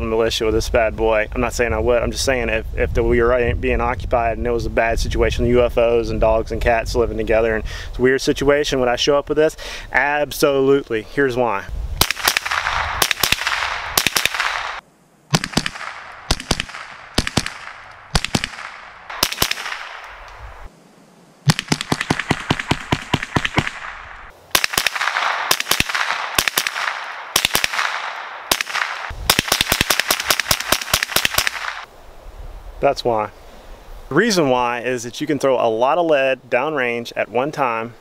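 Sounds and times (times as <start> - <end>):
rifle shots: 12.0 - 20.3, 21.4 - 31.9.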